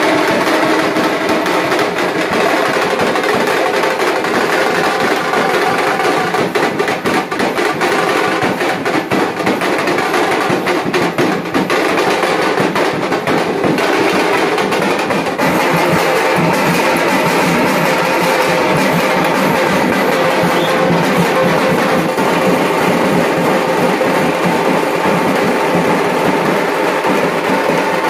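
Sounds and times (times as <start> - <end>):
dhol drums beating: 0.0 - 28.0.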